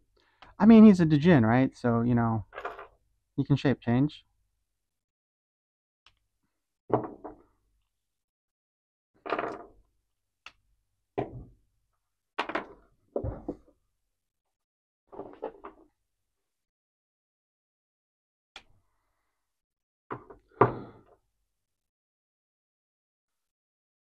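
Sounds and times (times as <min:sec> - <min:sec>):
plastic parts clicking and knocking: 0:12.4 - 0:13.7.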